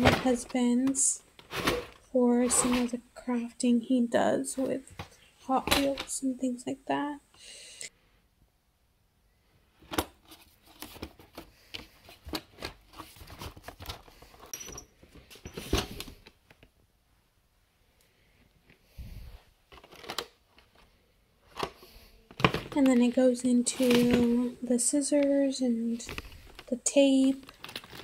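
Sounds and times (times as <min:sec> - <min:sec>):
blister packs rustling: 0:00.0 - 0:03.0, 0:19.1 - 0:28.0
plastic drawers opening: 0:00.0 - 0:03.0, 0:19.7 - 0:20.8, 0:21.5 - 0:24.6.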